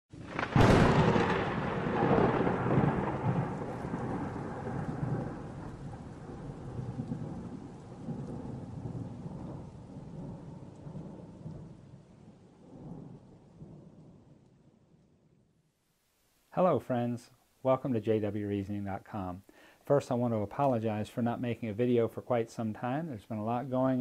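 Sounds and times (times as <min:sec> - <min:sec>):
rolling thunder: 0:00.1 - 0:15.3
rain: 0:00.1 - 0:24.0.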